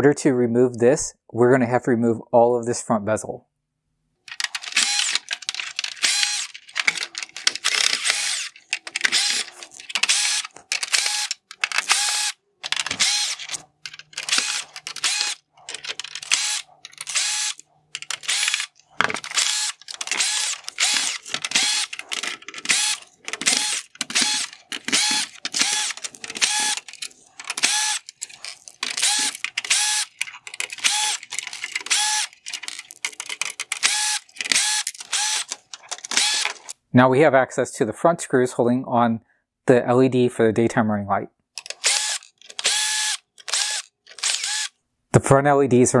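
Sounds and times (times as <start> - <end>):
cordless drill whirring: 4.6 - 36.8, 41.8 - 44.8.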